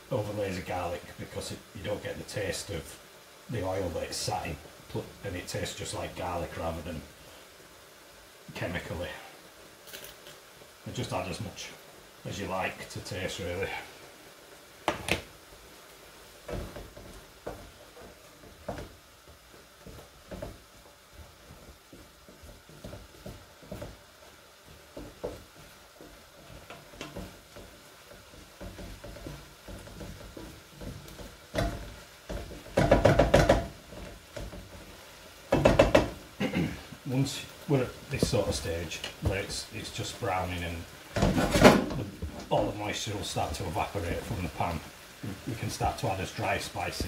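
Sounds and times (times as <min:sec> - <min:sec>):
faint sizzle: 0:00.0 - 0:47.0
wooden spatula knocking on pan: 0:14.8 - 0:15.3, 0:16.4 - 0:36.4.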